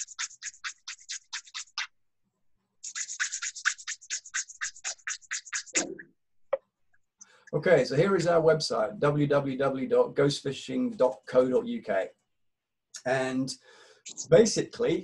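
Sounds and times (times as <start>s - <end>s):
rapid scratching strokes: 0.0s - 1.9s, 2.8s - 6.0s, 14.1s - 14.6s.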